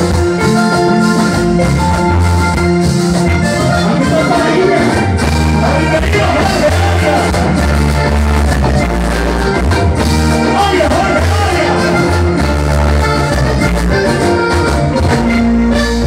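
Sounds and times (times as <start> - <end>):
accordion: 0.0 - 16.0
live band playing: 0.0 - 16.0
man singing into microphone: 5.6 - 7.7, 10.5 - 12.1.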